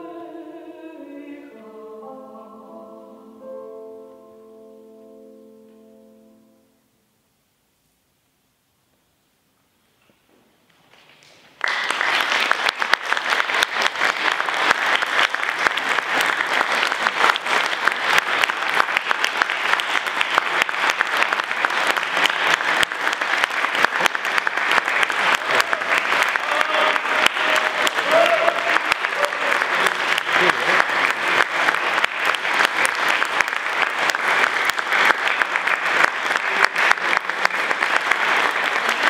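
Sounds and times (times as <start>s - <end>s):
audience applauding: 10.9s - 39.0s.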